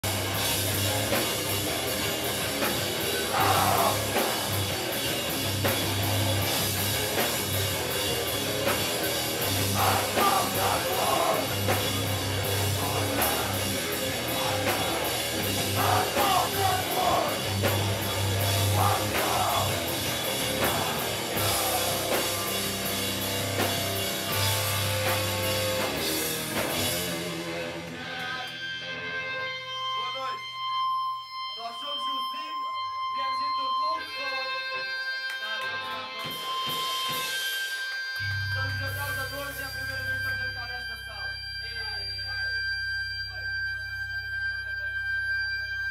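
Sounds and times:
pounding drum kit: 0.0 - 28.0
electric guitar: 0.0 - 31.6
rock vocals: 0.1 - 30.5.

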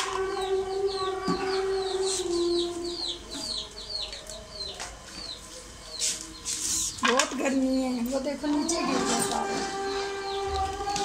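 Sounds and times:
bird chirping: 0.0 - 11.0.

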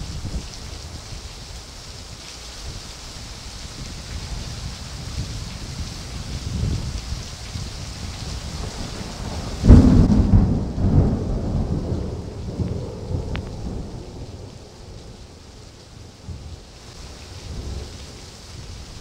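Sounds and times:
steady rain: 0.0 - 19.0
thunder rumbling: 5.7 - 19.0.

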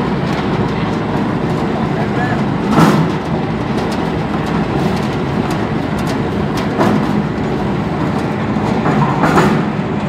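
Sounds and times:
briquette machine rumbling: 0.0 - 10.0
sharp mechanical knocks: 2.7 - 4.6.

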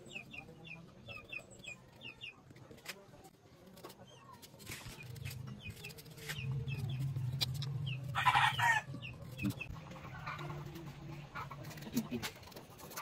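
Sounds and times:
chickens clucking: 5.6 - 13.0.

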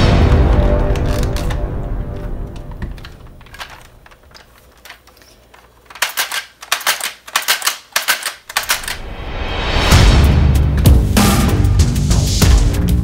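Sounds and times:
plastic toy blaster clicking: 2.8 - 9.0.

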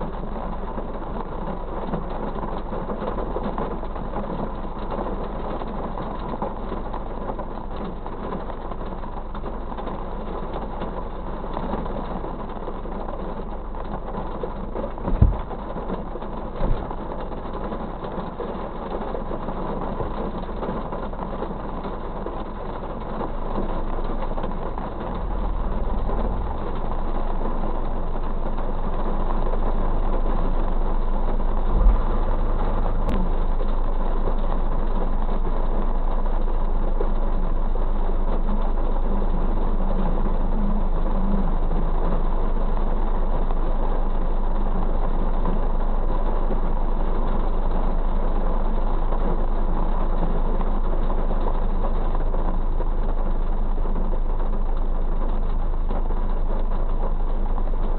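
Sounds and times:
rain on car roof: 0.0 - 57.9
low hum: 9.0 - 18.5, 23.2 - 57.9
dull thumps: 15.1 - 15.5.

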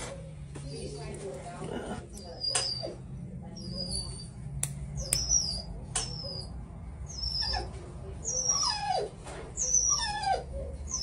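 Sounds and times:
animal whining cries: 7.1 - 11.0.

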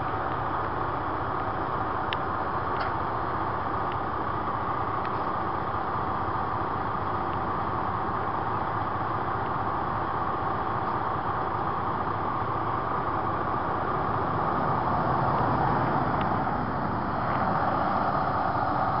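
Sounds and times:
truck engine running: 0.0 - 19.0
pickup truck driving past: 11.8 - 19.0.

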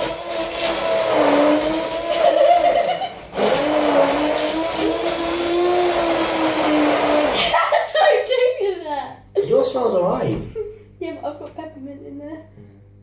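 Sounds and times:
stick blender motor hum: 0.0 - 7.6.

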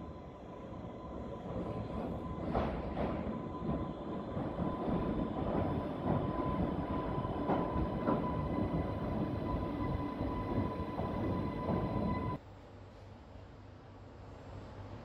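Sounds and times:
electric train whine: 0.0 - 12.4
train wheels rumbling: 0.7 - 12.4.

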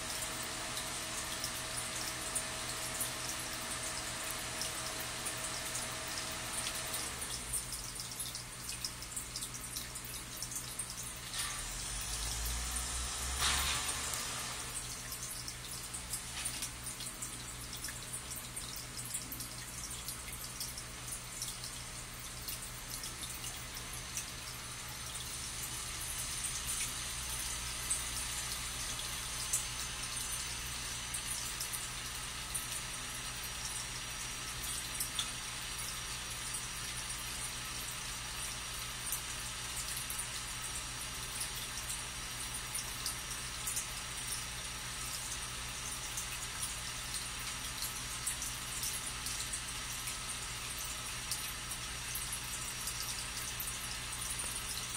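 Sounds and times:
water trickling and bubbling: 0.0 - 54.9.

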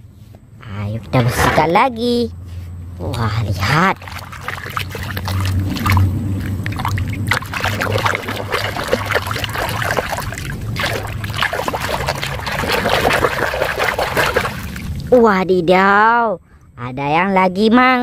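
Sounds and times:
water splashing in a basin: 3.2 - 15.2.

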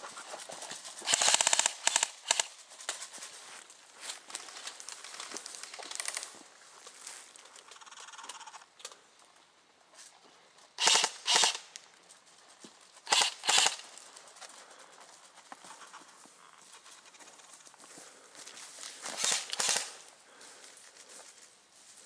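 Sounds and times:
airsoft gun bursts: 1.0 - 2.5, 10.8 - 11.7, 13.1 - 13.9, 19.2 - 20.0.

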